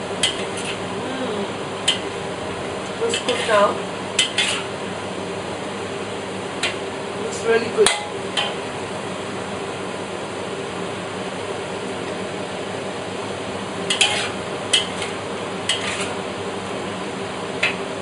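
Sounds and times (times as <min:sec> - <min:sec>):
stir-fry sizzling in a wok: 0:00.0 - 0:18.0
metal spatula scraping a wok: 0:00.2 - 0:00.8, 0:03.0 - 0:04.7, 0:13.9 - 0:16.2.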